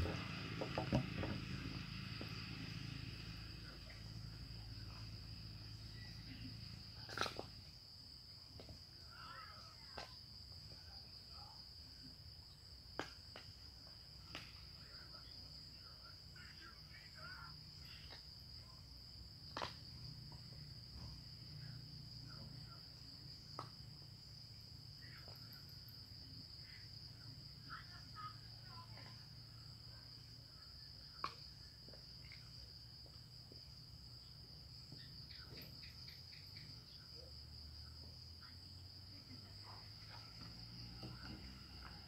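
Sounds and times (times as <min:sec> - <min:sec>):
faint chirps: 0:34.2 - 0:42.0.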